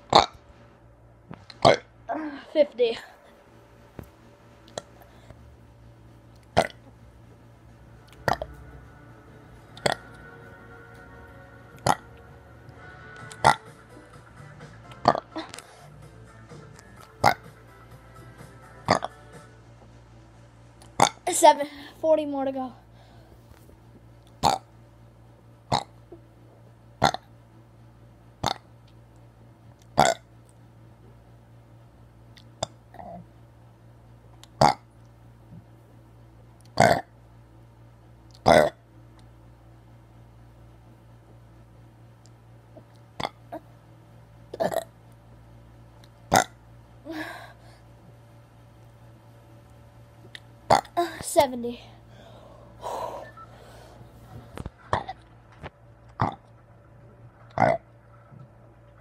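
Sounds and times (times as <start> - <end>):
boy burping: 44.6 - 44.9.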